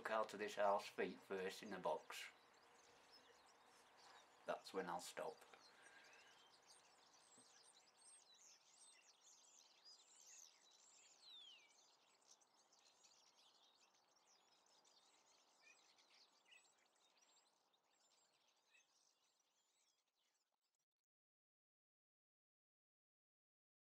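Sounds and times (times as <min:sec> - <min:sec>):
small birds chirping: 0:00.0 - 0:20.6.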